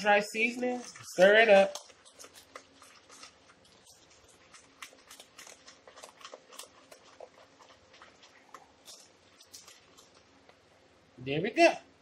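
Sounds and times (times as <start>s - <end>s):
spoon scraping plastic bowl: 0.0s - 10.2s.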